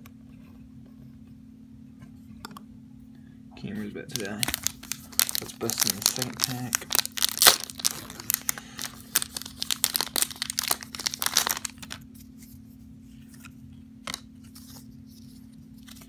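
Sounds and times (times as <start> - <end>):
plastic wrapper crinkling: 4.1 - 12.4.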